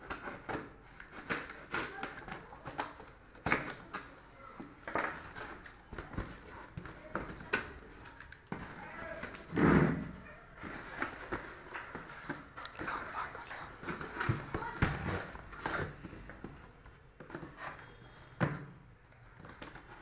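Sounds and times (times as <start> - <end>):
cardboard tearing and rustling: 0.0 - 4.1.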